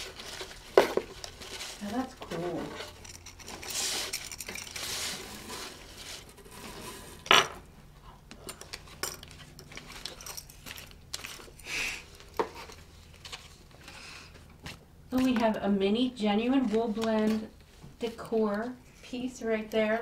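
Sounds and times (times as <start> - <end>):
fabric and packaging rustling: 0.0 - 7.2, 8.8 - 15.5
small metallic clinks: 2.8 - 4.8, 8.4 - 11.3.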